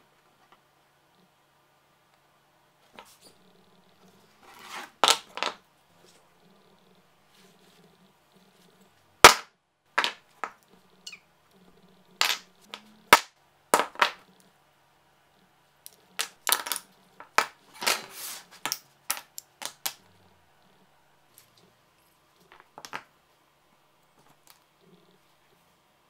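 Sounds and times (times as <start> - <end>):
wood scrape: 4.0 - 5.3, 17.7 - 18.7.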